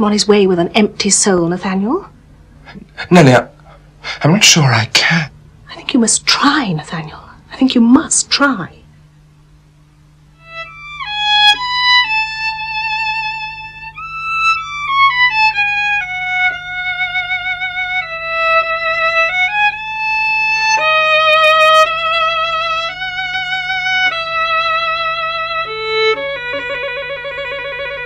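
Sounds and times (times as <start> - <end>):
solo violin slow melody: 10.3 - 28.0.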